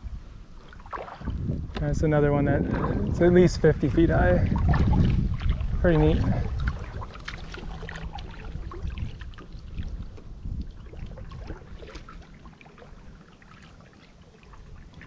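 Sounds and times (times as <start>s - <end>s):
small water splashes: 0.5s - 15.0s
water dripping off paddle: 4.5s - 15.0s.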